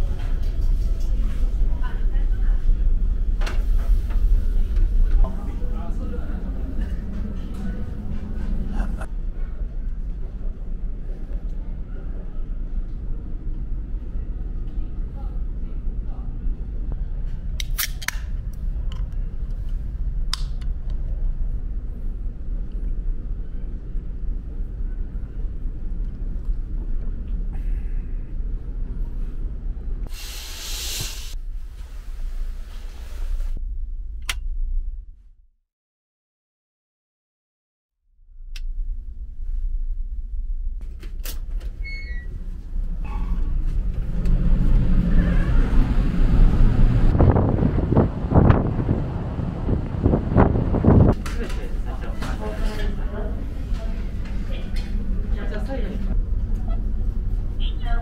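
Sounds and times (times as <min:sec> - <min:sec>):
ferry engines droning: 0:00.0 - 0:30.1, 0:41.5 - 0:58.0
loud hissing: 0:30.1 - 0:31.4.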